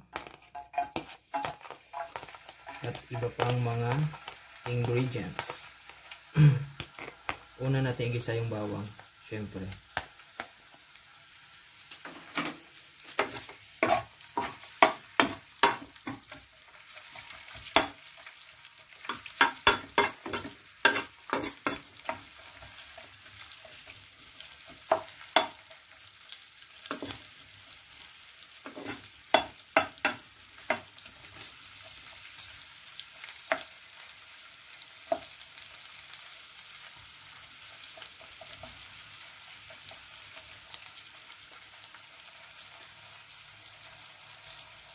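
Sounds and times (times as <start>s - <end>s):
utensil knocking and scraping pan: 0.0s - 3.7s, 13.2s - 16.4s, 19.1s - 22.2s, 28.7s - 30.9s
oil sizzling in a pan: 0.0s - 44.9s.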